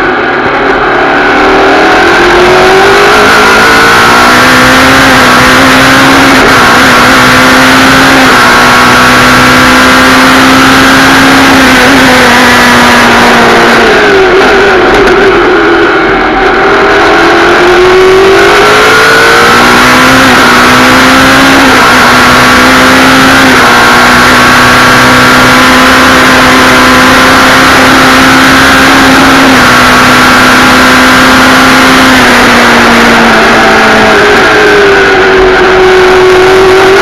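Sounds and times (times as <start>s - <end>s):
race car engine at speed: 0.0s - 37.0s
wind and road rush: 0.0s - 37.0s.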